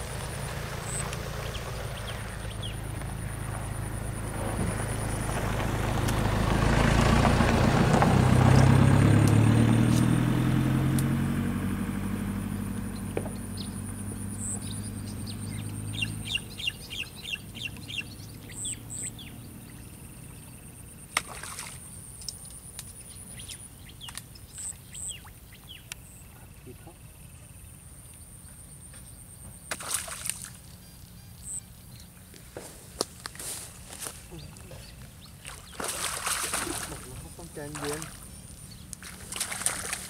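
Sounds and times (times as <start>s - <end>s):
vehicle driving past: 0.0s - 21.1s.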